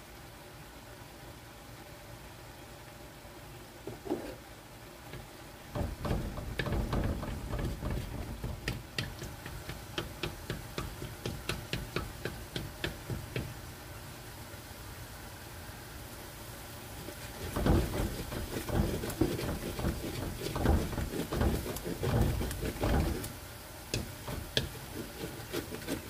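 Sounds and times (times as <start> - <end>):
spatula knocking on a wok: 5.7 - 13.6, 17.4 - 23.3, 23.9 - 25.9.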